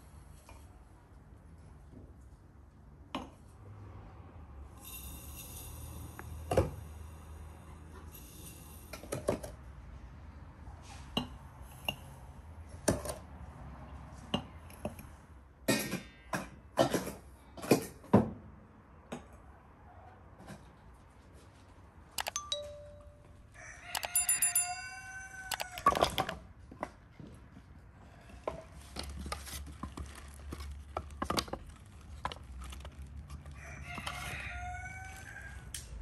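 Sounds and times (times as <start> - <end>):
rooster crowing: 23.6 - 26.2, 33.6 - 35.9
glass jars clinking: 24.0 - 25.0.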